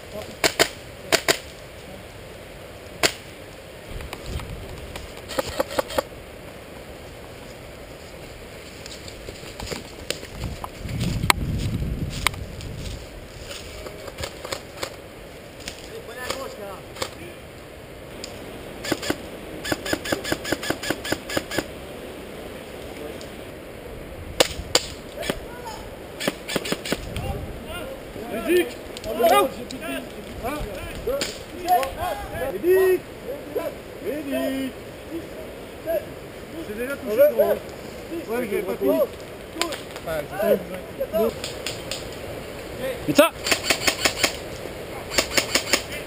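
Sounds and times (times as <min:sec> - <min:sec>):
airsoft rifle shots: 0:18.8 - 0:21.7, 0:26.2 - 0:27.1, 0:43.4 - 0:44.4, 0:45.1 - 0:45.9.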